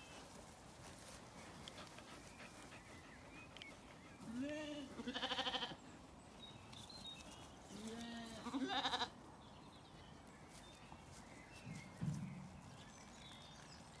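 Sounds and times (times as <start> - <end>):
sheep bleating: 4.3 - 5.8, 7.7 - 9.2.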